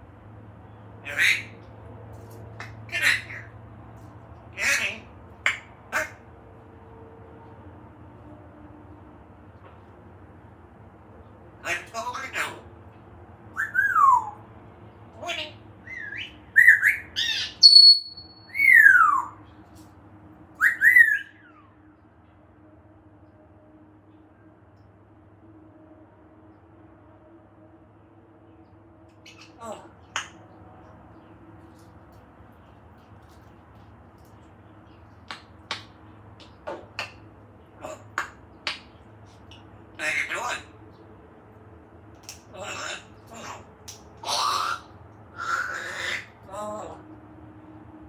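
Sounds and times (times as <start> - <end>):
parrot whistling: 13.5 - 14.4, 15.9 - 19.4, 20.6 - 21.5
parrot snapping clicks: 42.1 - 42.4, 43.8 - 44.1.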